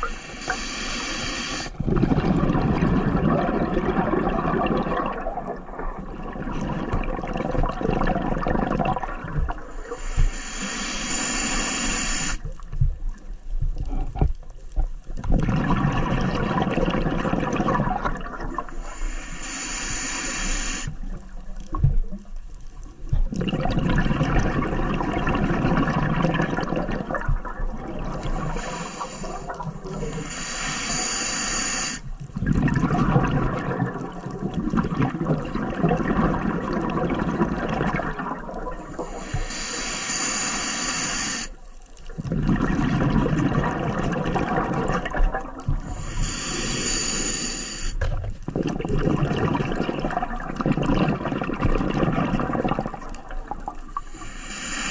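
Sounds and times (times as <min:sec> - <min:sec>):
regulator hissing inhale: 0:00.0 - 0:01.8, 0:09.7 - 0:12.5, 0:18.7 - 0:21.0, 0:28.2 - 0:32.1, 0:38.9 - 0:41.6, 0:45.8 - 0:48.0, 0:54.0 - 0:54.9
bubbling underwater exhalations: 0:01.7 - 0:09.7, 0:15.2 - 0:18.7, 0:23.2 - 0:30.2, 0:32.4 - 0:39.2, 0:42.1 - 0:46.8, 0:48.0 - 0:53.8.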